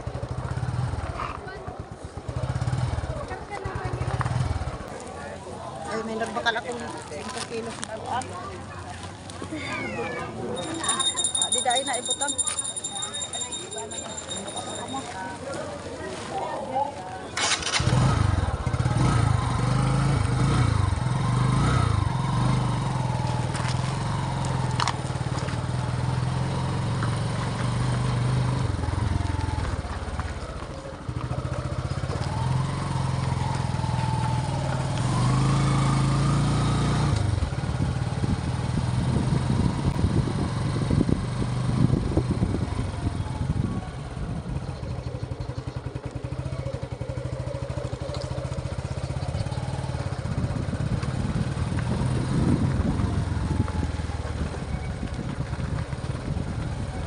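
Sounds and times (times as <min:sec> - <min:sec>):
motorcycle engine revving: 0:00.0 - 0:05.0, 0:17.4 - 0:57.0
low rumbling over rough track: 0:17.0 - 0:57.0.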